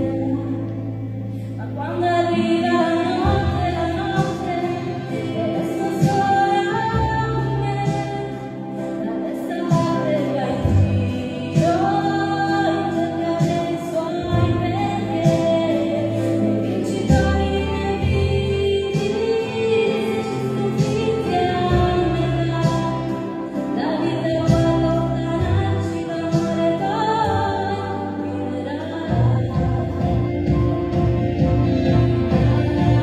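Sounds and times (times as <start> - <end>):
woman singing pop ballad: 0.0 - 33.0
backing track with bass and percussion: 9.4 - 28.2, 28.9 - 33.0.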